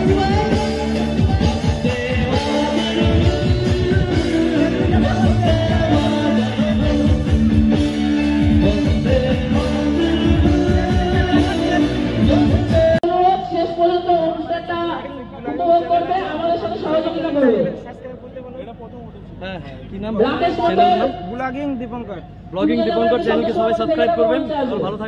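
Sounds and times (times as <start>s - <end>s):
steady drum beat: 0.0s - 13.0s
live band music with singer: 0.0s - 17.7s.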